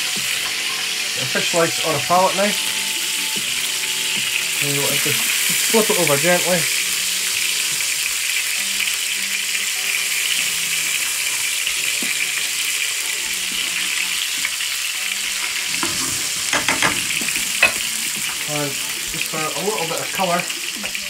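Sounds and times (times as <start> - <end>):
oil sizzling in a frying pan: 0.0 - 21.0
clicks and knocks: 15.8 - 17.9.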